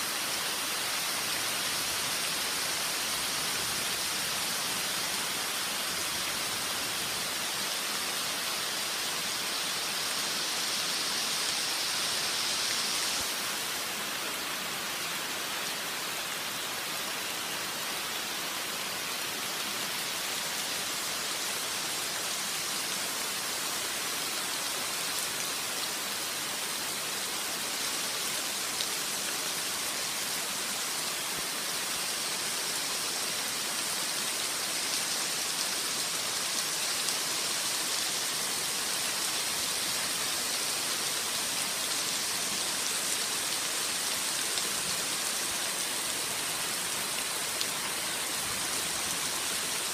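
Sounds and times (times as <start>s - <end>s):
rain falling on foliage: 0.0s - 49.9s.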